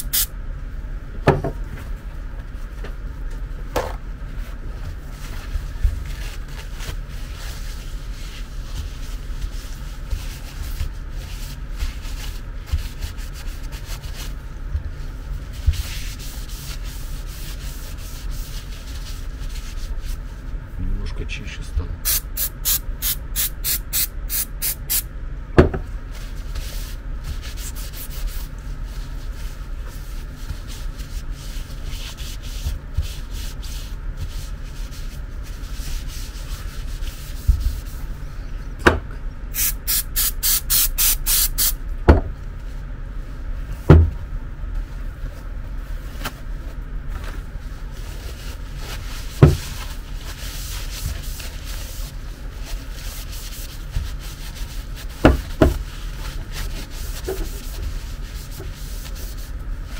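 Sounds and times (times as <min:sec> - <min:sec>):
aerosol spray can spritzes: 0:00.0 - 0:00.3, 0:22.1 - 0:25.0, 0:39.6 - 0:41.8
knocks on a bench: 0:01.2 - 0:01.6, 0:25.6 - 0:25.8, 0:42.1 - 0:42.3, 0:43.9 - 0:44.2
paper towel wiping: 0:04.3 - 0:20.6, 0:26.2 - 0:38.1, 0:47.2 - 0:59.9.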